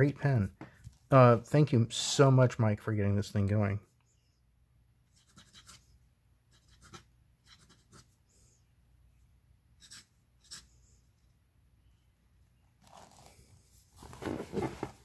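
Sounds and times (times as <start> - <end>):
fountain pen scratching on paper: 5.2 - 5.8, 6.5 - 8.1.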